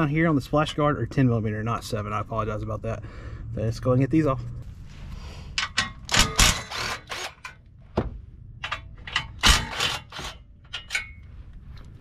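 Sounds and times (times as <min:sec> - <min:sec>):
metal tools clanking: 0:05.6 - 0:07.6, 0:08.6 - 0:11.3.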